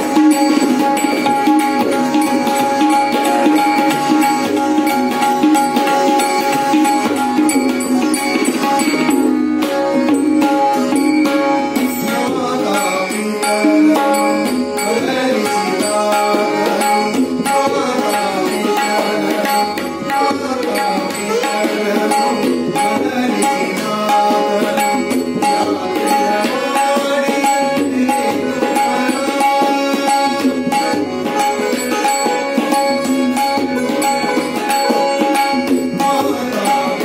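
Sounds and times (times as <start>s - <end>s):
harmonium: 0.0s - 37.0s
sitar: 0.0s - 37.0s
tabla strokes: 0.0s - 37.0s
men singing: 11.8s - 37.0s.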